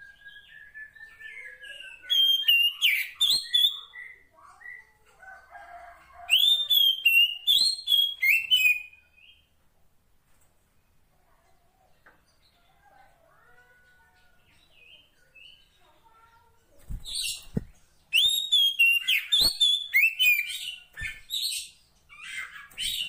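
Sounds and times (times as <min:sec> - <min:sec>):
bird whistling and chirping: 0:00.0 - 0:04.2, 0:06.3 - 0:09.3, 0:17.1 - 0:23.0.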